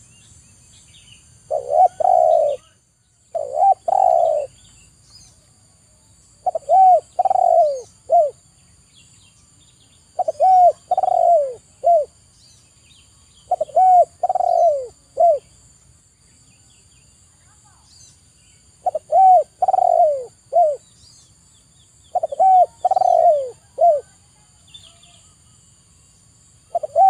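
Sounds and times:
dove cooing: 1.5s - 4.6s, 6.4s - 8.4s, 10.2s - 12.2s, 13.5s - 15.5s, 18.8s - 20.8s, 22.1s - 24.3s, 26.7s - 27.0s.

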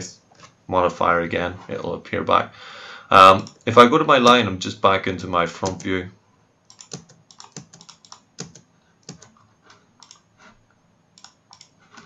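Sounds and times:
keyboard keys clicking: 5.6s - 5.9s, 6.7s - 10.2s, 11.2s - 12.0s.

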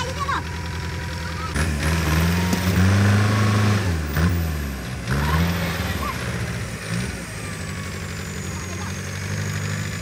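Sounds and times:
tractor diesel engine revving: 0.0s - 10.0s.

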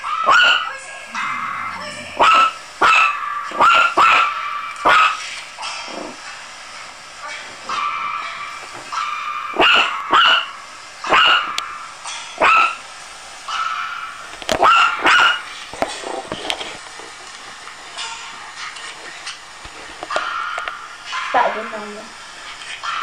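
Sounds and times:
puppy yapping: 0.0s - 5.2s, 7.7s - 11.6s, 12.4s - 12.8s, 13.5s - 15.5s.

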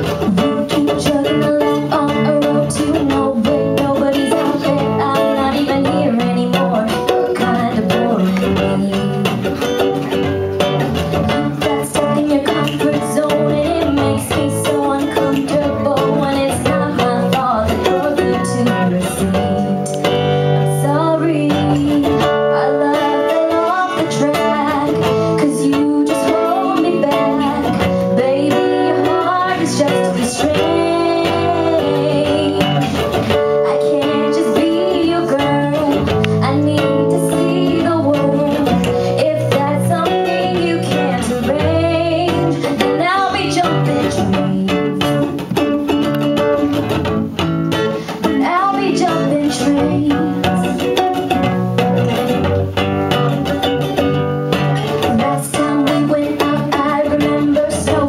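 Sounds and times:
woman singing into microphone: 0.0s - 10.2s, 11.2s - 47.0s, 48.0s - 51.6s, 54.5s - 58.0s
acoustic guitar: 0.0s - 58.0s.

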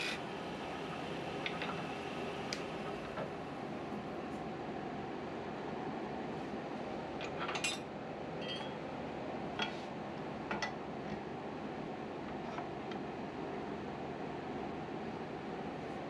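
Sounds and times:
metal tool clinking on tool rest: 7.2s - 7.8s, 8.4s - 8.8s.

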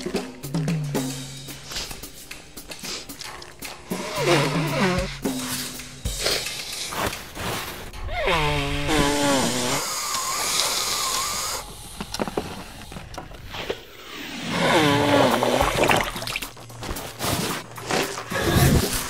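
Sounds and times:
tissue rustling: 1.5s - 9.8s, 15.1s - 19.0s
person blowing nose: 1.6s - 11.7s, 14.4s - 19.0s.

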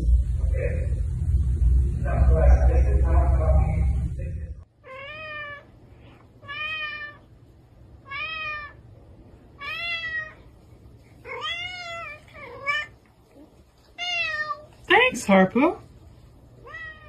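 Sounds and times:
cat meowing: 4.8s - 5.7s, 6.4s - 7.3s, 8.0s - 8.8s, 9.6s - 10.4s, 11.2s - 13.0s, 13.9s - 14.7s, 16.6s - 17.0s.

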